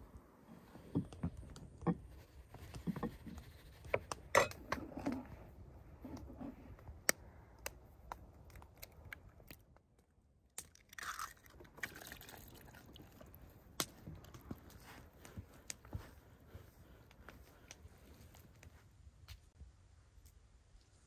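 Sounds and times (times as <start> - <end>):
eggs cracking: 10.5 - 13.1.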